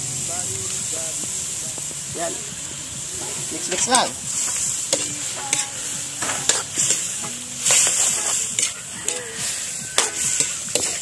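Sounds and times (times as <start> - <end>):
simmering liquid sizzling: 0.0 - 11.0
metal spatula scraping a wok: 3.2 - 11.0.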